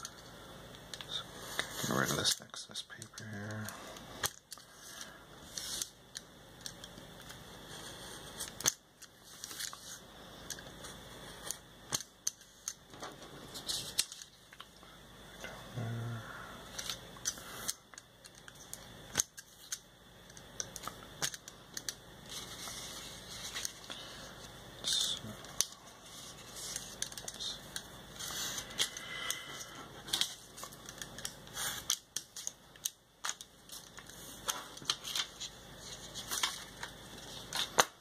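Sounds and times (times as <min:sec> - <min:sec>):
paper rustling: 0:33.2 - 0:37.9.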